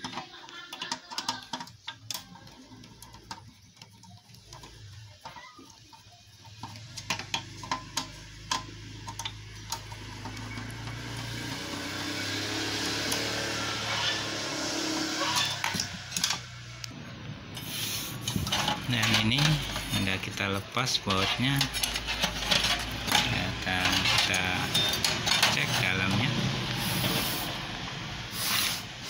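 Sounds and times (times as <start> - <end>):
screwdriver scraping rasp: 17.6 - 27.6.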